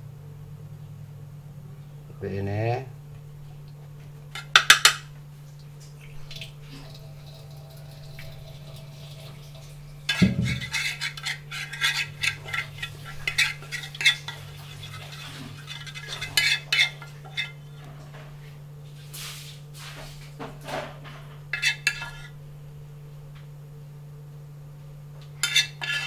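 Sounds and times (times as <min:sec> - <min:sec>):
spoon scraping and clinking pan: 0:10.1 - 0:17.6, 0:21.5 - 0:22.4, 0:25.4 - 0:26.0.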